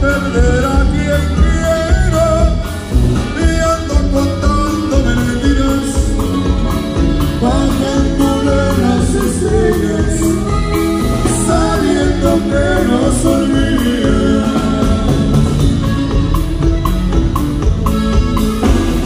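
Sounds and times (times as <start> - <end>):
button accordion: 0.0 - 19.0
live band music: 0.0 - 19.0
saxophone: 0.0 - 19.0.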